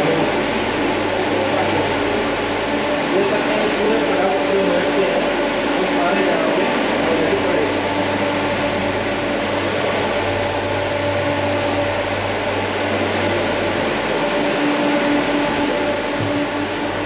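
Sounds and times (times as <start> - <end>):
refrigeration unit whirring hum: 0.0 - 17.0.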